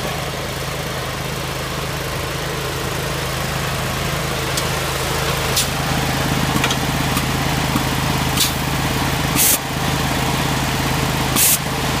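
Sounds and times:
engine and air compressor running: 0.0s - 12.0s
compressed air hissing: 8.3s - 8.7s, 9.3s - 9.6s, 11.4s - 11.6s.

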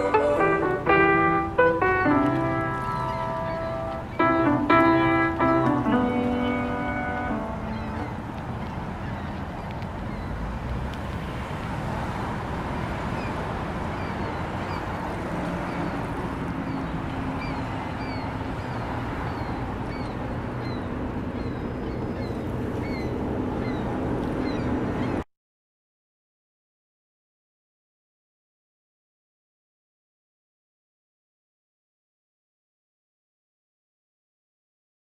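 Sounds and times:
birds chirping: 0.0s - 10.8s, 12.9s - 25.2s
steady rushing noise: 0.0s - 25.2s.

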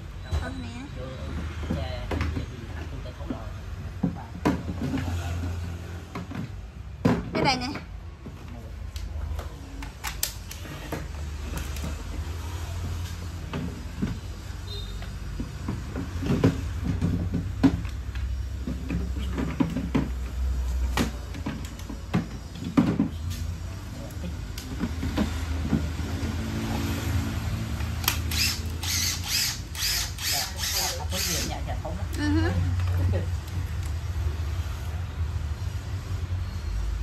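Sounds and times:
power tools clicking and knocking: 27.7s - 31.8s.

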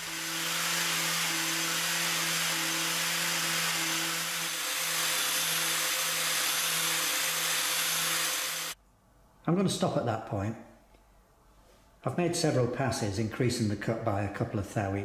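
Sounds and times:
angle grinder grinding steel: 0.0s - 8.8s.

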